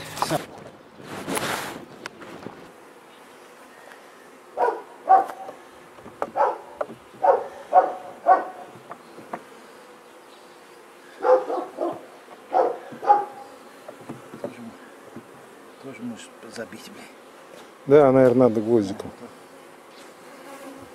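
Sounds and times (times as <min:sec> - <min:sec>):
honeybees buzzing: 0:00.0 - 0:20.9
dog barking: 0:04.6 - 0:05.5, 0:06.4 - 0:08.7, 0:11.2 - 0:13.4.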